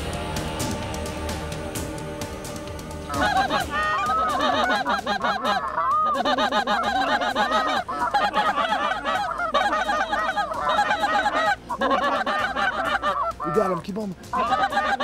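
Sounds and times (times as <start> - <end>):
geese honking: 2.6 - 15.0.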